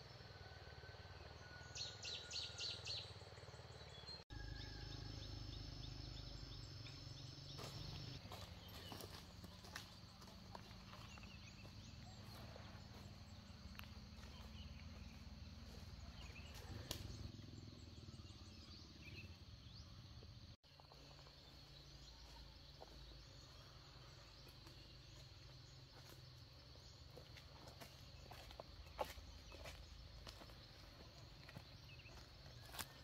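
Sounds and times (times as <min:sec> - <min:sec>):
soft bird chirps: 0:20.7 - 0:33.0.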